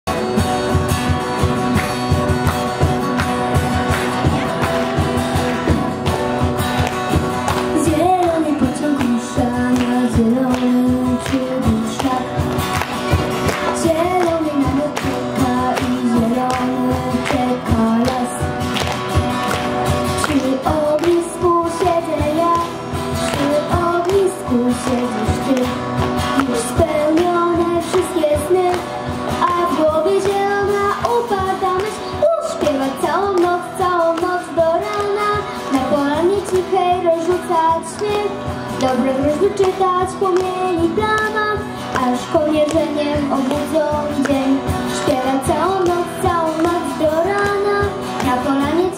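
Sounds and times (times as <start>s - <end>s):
acoustic guitar strumming: 0.1s - 48.9s
cajon beat: 0.1s - 48.9s
girl singing: 7.1s - 18.7s, 20.0s - 48.9s.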